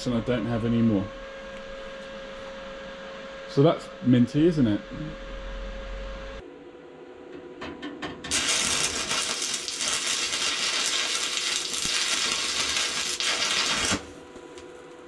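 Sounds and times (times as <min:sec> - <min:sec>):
welding arc crackle: 0:08.3 - 0:15.0.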